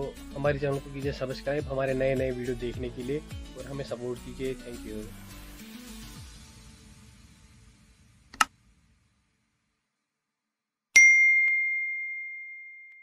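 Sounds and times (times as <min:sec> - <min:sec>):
notification bell ding: 0:11.0 - 0:13.0.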